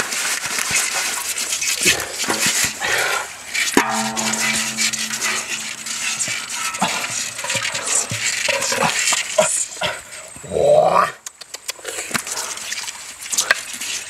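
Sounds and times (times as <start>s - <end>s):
knocks: 3.8s - 7.9s
steady pitched whine: 3.8s - 8.2s.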